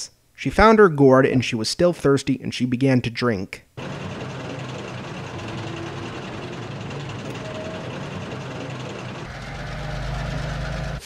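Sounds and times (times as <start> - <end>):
diesel railcar engine running: 3.8 - 11.0.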